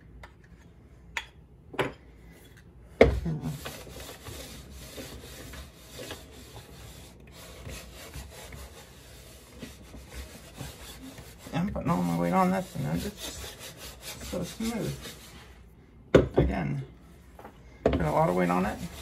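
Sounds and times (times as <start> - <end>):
hand plane rubbing on wood: 3.4 - 15.4, 18.0 - 19.0.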